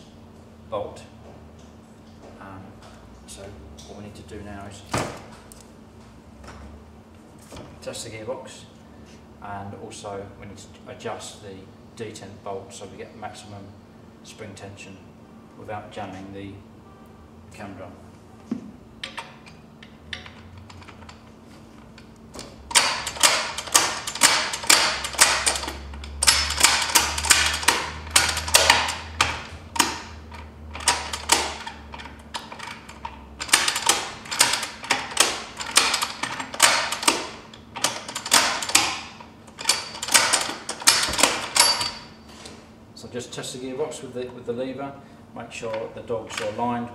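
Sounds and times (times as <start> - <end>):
gearbox clicking and clacking: 22.7 - 42.0.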